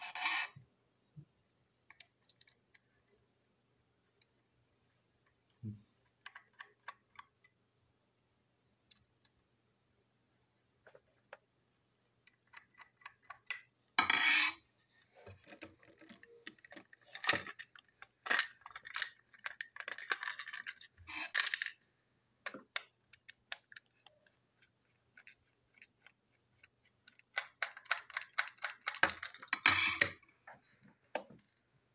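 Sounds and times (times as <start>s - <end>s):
small plastic clicks and rattles: 1.8s - 2.9s, 15.4s - 21.8s, 22.4s - 30.2s.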